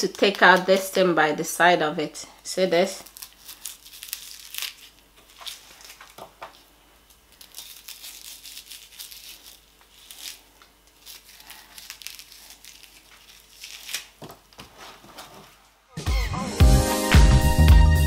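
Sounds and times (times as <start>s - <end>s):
soft tearing and crackling: 2.9s - 15.6s.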